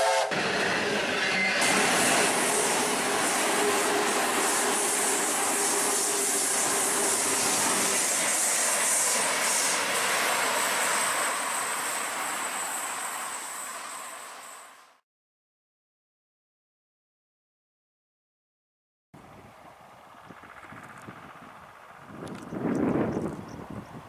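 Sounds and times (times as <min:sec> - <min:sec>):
train engine tone: 0:00.0 - 0:15.0
train rumbling on rails: 0:00.0 - 0:15.0, 0:19.2 - 0:24.0.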